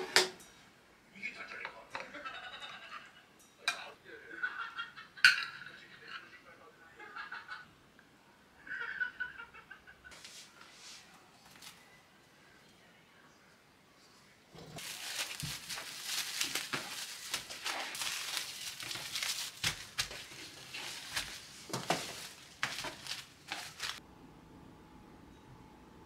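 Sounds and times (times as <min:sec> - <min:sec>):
cling film crinkling: 0:14.8 - 0:24.0.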